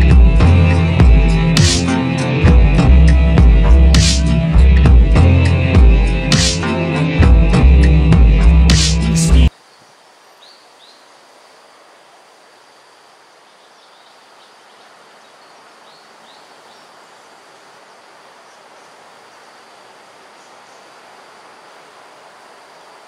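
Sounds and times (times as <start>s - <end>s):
insects hissing: 0.0s - 7.2s, 7.8s - 23.0s
high held insect tone: 0.0s - 23.0s
faint high bird chirps: 9.5s - 11.2s, 13.4s - 17.2s.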